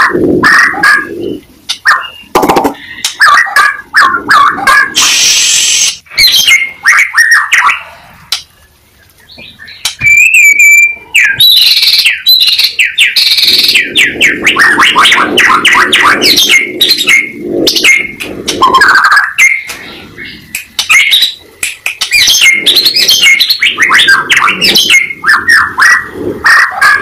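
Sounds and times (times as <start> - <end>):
songbird singing loudly: 0.6 - 7.8, 9.2 - 27.0
whistled bird note: 9.7 - 21.4.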